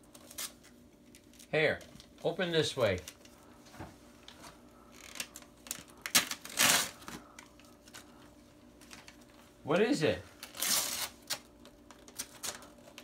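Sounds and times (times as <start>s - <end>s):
paper ripping: 10.4s - 12.7s.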